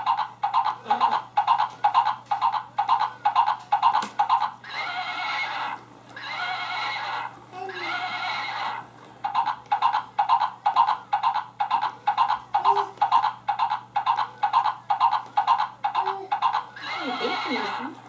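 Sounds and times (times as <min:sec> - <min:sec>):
galloping hoofbeats: 0:00.0 - 0:07.2, 0:08.0 - 0:17.8
horse whinnies: 0:04.6 - 0:08.8, 0:16.8 - 0:17.8.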